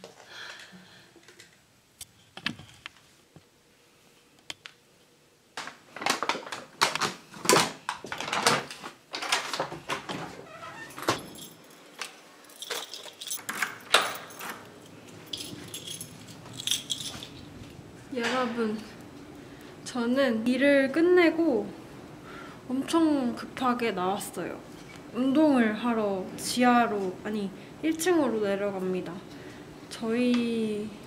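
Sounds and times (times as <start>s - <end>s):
door opening and shutting: 9.3s - 11.4s
keys jangling: 10.8s - 17.6s.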